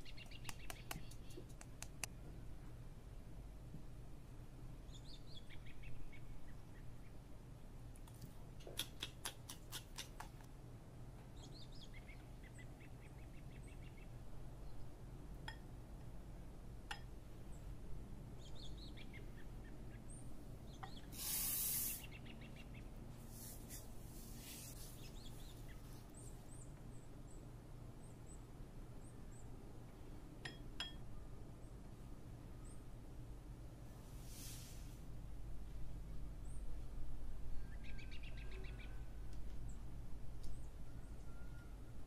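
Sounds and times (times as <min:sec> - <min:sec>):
short hiss: 0:21.1 - 0:22.2, 0:34.2 - 0:35.1
faint bird chirps: 0:24.3 - 0:29.6, 0:37.5 - 0:39.9, 0:40.5 - 0:42.0.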